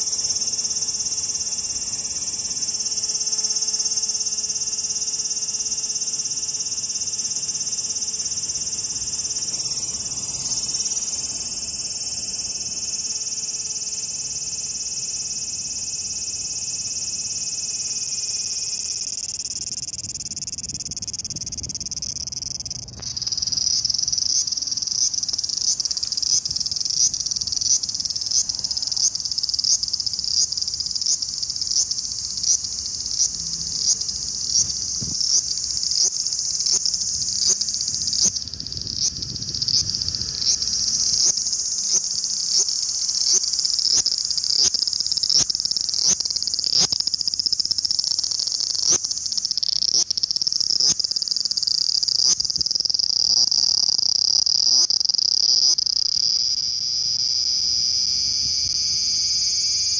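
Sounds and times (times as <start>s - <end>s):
cicada singing: 0.0s - 59.9s.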